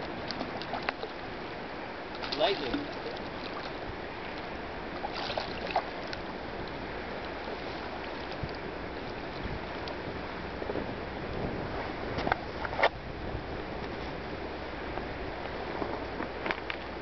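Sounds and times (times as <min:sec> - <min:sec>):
river flowing over stones: 0:00.0 - 0:11.2.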